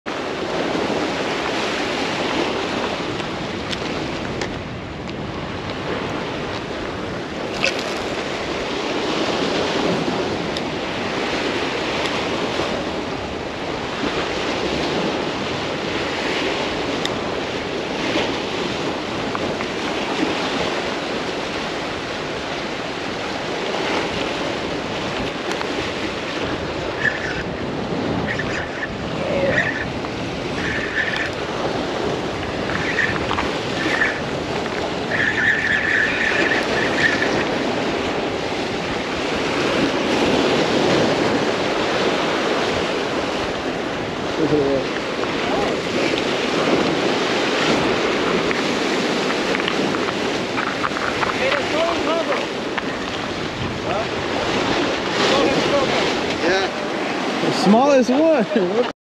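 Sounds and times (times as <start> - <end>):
surf washing against rocks: 0.1 - 58.9
wind buffeting microphone: 0.1 - 58.9.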